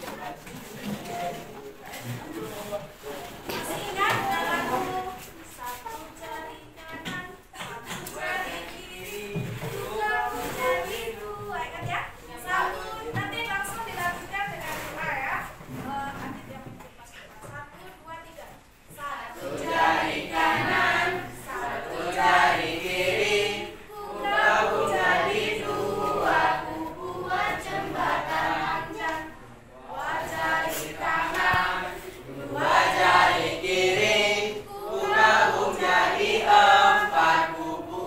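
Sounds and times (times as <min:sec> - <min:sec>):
children singing in unison: 0:07.9 - 0:11.4, 0:19.4 - 0:38.0.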